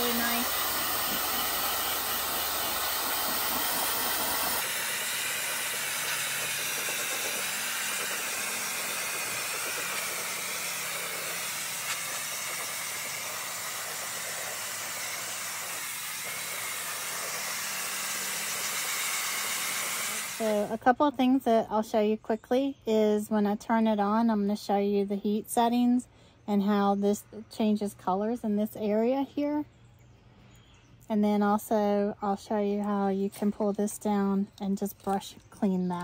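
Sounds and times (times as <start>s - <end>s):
pet dryer blowing air: 0.0s - 20.7s.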